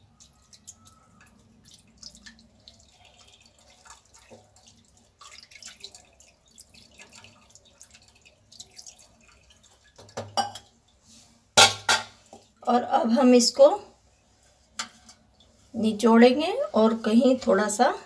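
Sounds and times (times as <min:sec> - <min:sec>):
water splashing and dripping: 0:00.0 - 0:11.0.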